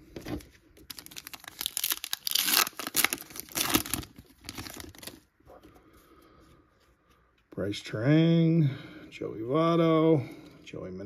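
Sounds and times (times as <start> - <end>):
foil wrapper tearing and crinkling: 0.8 - 5.2.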